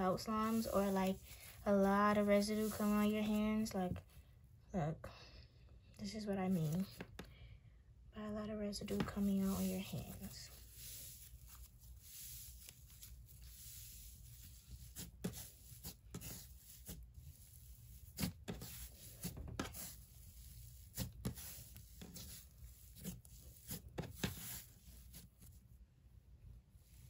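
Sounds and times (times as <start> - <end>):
slime crackling and squishing: 8.9 - 25.2.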